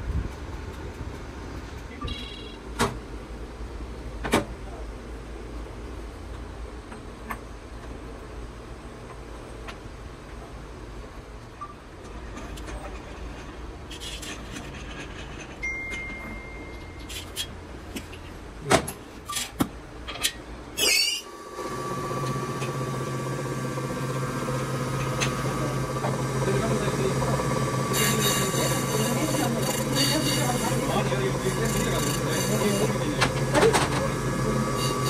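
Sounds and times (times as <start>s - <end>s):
grinder humming and whining: 20.8s - 35.0s
high grinding hiss: 20.8s - 35.0s.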